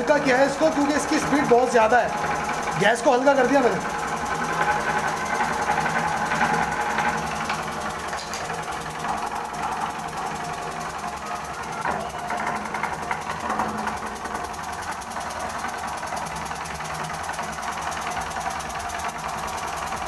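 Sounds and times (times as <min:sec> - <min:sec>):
steam engine running: 0:00.0 - 0:20.0.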